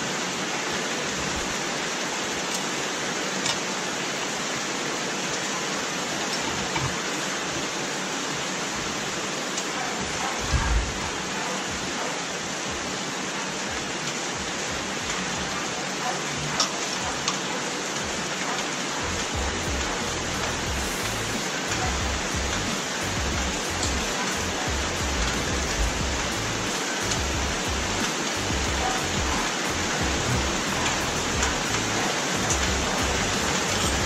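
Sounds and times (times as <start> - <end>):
rain hissing: 0.0 - 34.0.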